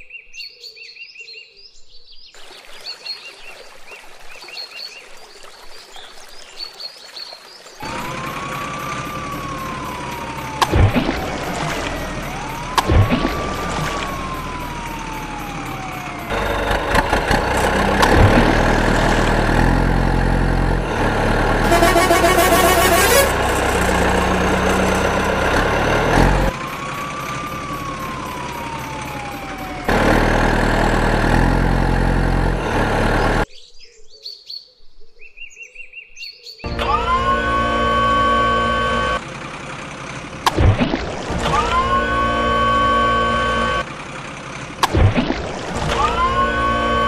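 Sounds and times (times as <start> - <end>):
siren wail: 7.8 - 16.6, 21.6 - 25.4, 26.0 - 30.0, 36.7 - 39.2, 41.3 - 43.9, 45.8 - 47.0
heavy truck engine running: 7.8 - 33.5, 36.7 - 47.0.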